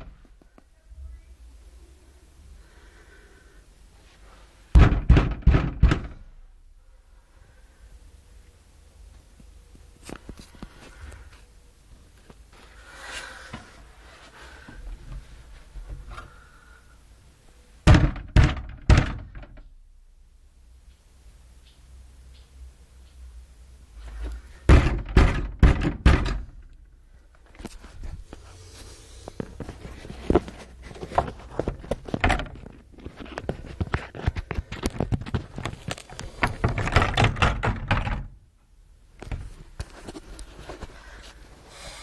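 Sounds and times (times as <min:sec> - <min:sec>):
loud thuds: 0:04.7 - 0:06.4, 0:17.8 - 0:19.6, 0:24.6 - 0:26.7
irregular knocking and clatter: 0:04.8 - 0:06.2, 0:24.7 - 0:26.4, 0:29.4 - 0:38.3.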